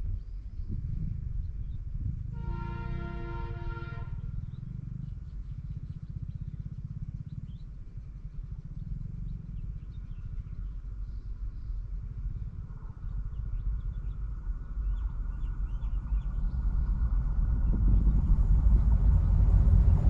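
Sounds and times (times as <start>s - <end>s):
diesel locomotive engine rumble: 0.0s - 20.0s
birds chirping: 4.0s - 20.0s.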